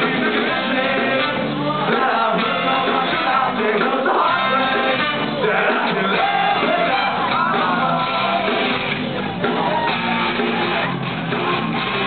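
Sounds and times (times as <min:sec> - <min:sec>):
trumpet and trombone: 0:00.0 - 0:08.7
person singing: 0:00.0 - 0:08.8
ska-punk band playing live: 0:00.0 - 0:12.0.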